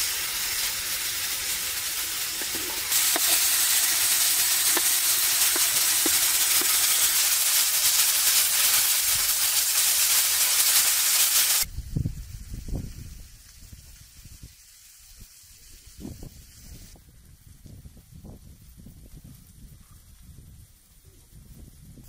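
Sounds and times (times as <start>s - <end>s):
vegetables sizzling in hot oil: 0.0s - 17.0s
wind rumble on microphone: 11.6s - 22.0s.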